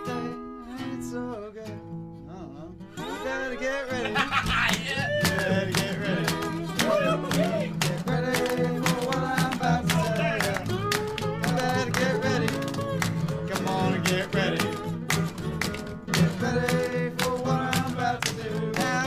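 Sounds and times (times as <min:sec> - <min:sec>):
plucked guitar: 0:00.0 - 0:19.0.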